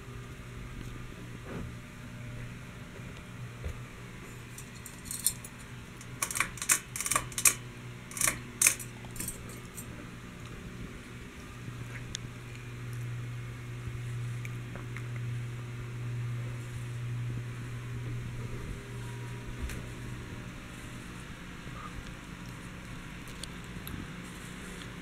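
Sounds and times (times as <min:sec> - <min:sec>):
ceiling fan motor hum: 0:00.0 - 0:25.0
pull chain jingling and clicking: 0:04.6 - 0:09.9.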